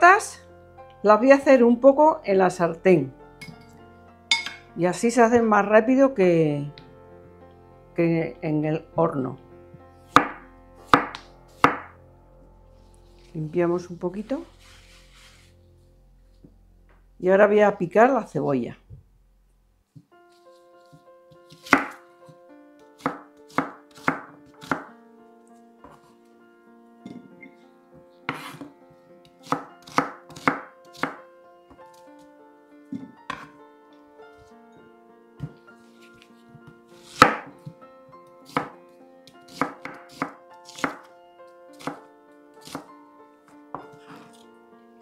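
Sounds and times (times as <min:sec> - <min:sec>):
soft background music: 0:00.0 - 0:45.0
knife chopping on cutting board: 0:10.1 - 0:11.9, 0:20.9 - 0:22.0, 0:23.0 - 0:24.9, 0:28.3 - 0:28.7, 0:29.4 - 0:31.2, 0:33.0 - 0:33.5, 0:37.0 - 0:37.8, 0:38.4 - 0:38.8, 0:39.5 - 0:41.1, 0:41.8 - 0:42.0, 0:42.6 - 0:42.9.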